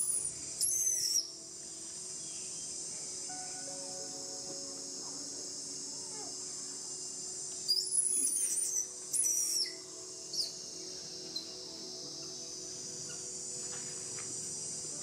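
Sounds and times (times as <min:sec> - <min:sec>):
drone of insects: 0:00.0 - 0:15.0
young monkey squealing: 0:07.7 - 0:09.8.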